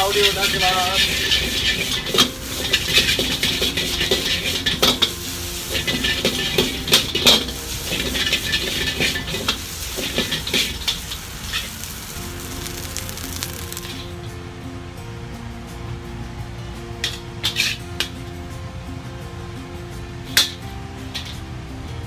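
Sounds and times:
ladle scraping and knocking wok: 0.0 - 14.1
rice sizzling in a wok: 0.0 - 14.2.

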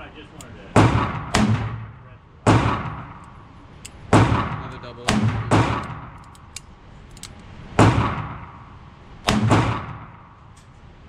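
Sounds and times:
revolver shots echoing: 0.8 - 3.3, 7.8 - 10.3.

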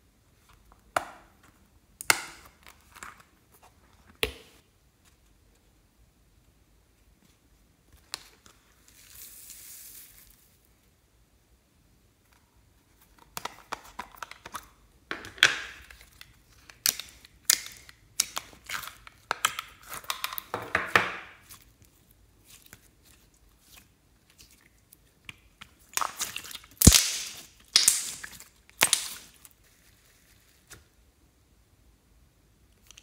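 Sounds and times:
slime crackling and squelching: 15.7 - 30.8.

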